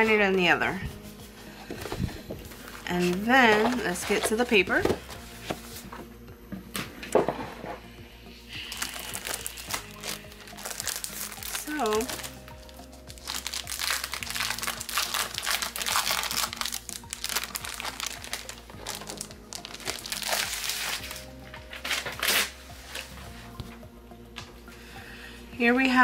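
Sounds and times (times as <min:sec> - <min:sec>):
soft background music: 0:00.0 - 0:26.0
plastic wrap crinkling: 0:08.6 - 0:23.2.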